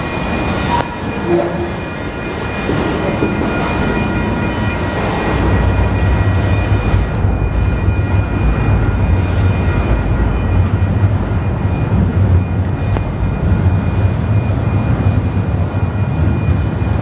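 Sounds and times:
freight train wheels rumbling: 0.0s - 17.0s.

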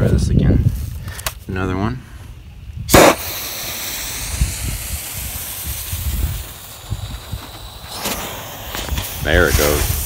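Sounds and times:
firework fuse hissing: 2.5s - 10.0s.

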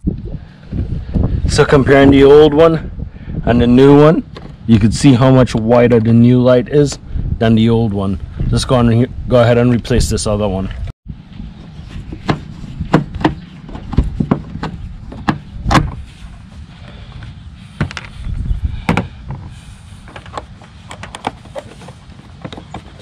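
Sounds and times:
steady low rumble: 0.0s - 22.5s.

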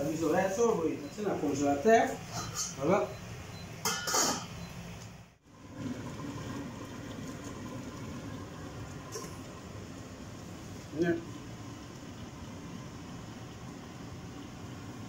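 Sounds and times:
metal lid clatter: 3.8s - 4.5s
pot simmering bubbling hiss: 5.4s - 15.0s.

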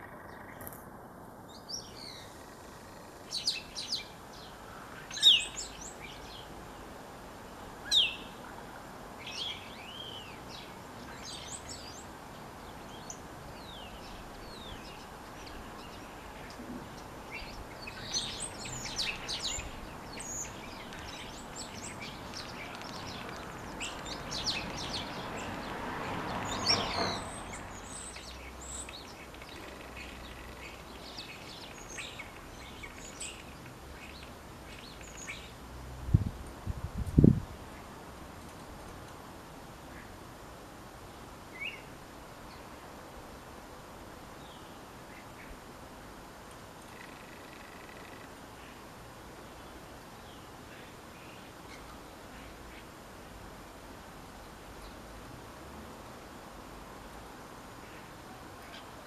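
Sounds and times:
starling singing and calling: 1.6s - 6.5s, 7.9s - 8.4s, 12.6s - 35.5s.

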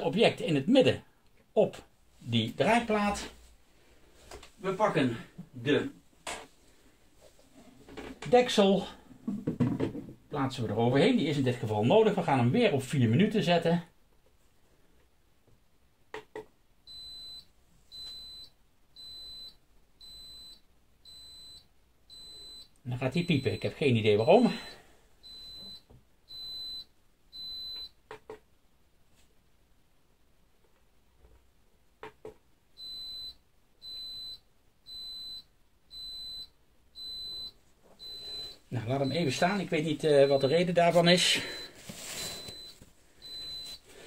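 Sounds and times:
high electronic beeps: 37.1s - 41.7s.

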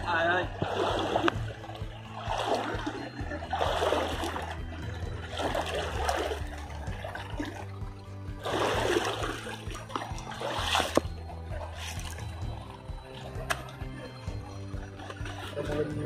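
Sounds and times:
background music: 0.0s - 16.0s
river water splashing: 0.0s - 16.0s.

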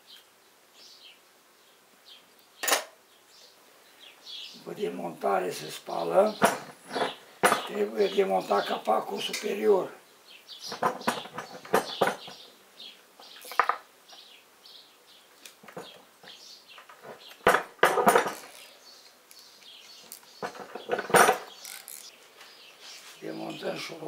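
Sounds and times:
metal tools clinking on table: 2.6s - 2.9s.

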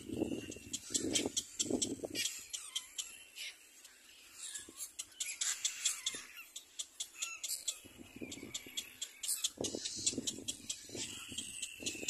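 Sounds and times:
high squeaky bird chick calls: 0.2s - 3.6s, 4.3s - 12.0s
lower rough bird calls: 4.3s - 12.0s.

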